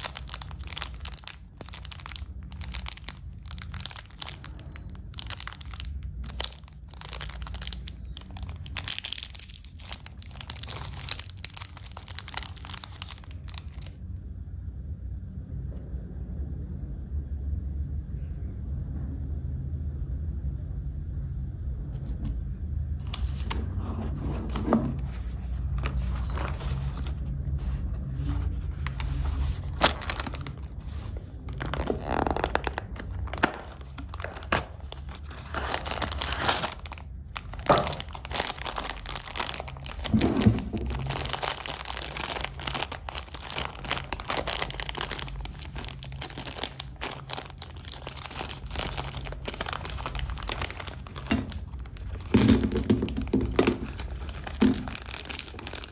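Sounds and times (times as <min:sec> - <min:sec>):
foil bag crinkling: 0:00.0 - 0:14.0, 0:28.8 - 0:55.9.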